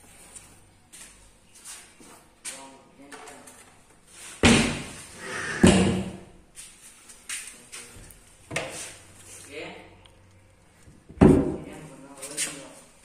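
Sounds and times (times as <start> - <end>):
loud slams: 4.4 - 6.2.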